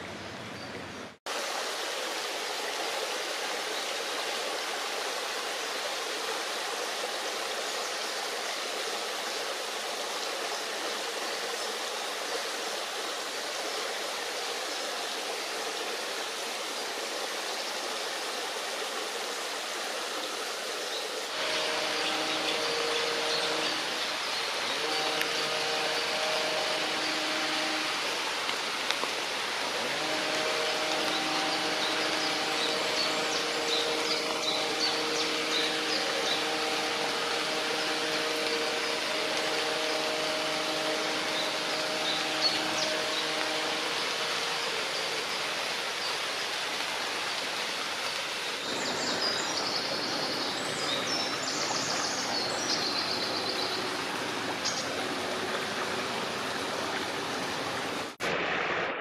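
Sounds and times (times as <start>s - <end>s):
stream water rushing: 0.0s - 59.0s
songbird singing: 20.9s - 27.9s, 30.0s - 46.2s
droning hum with pitched tones: 21.4s - 45.9s.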